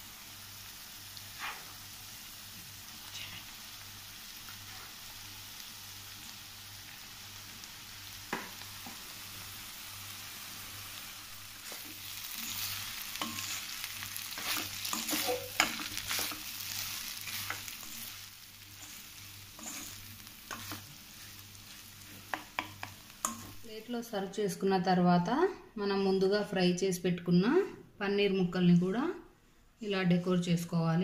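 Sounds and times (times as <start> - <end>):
food sizzling in a pan: 0.0 - 24.0
spoon scraping a metal pan: 11.7 - 18.1, 18.7 - 21.0.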